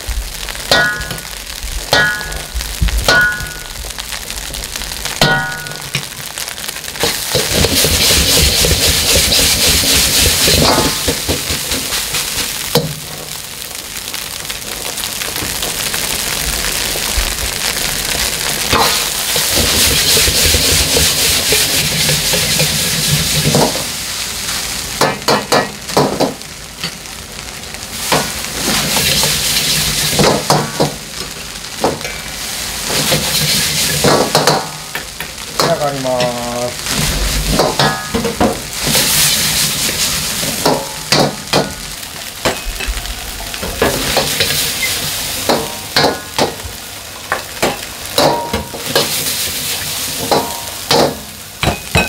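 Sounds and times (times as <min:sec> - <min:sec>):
rice sizzling: 0:00.0 - 0:52.0
metal ladle clanking on wok: 0:00.7 - 0:01.3, 0:01.9 - 0:02.5, 0:47.6 - 0:49.2.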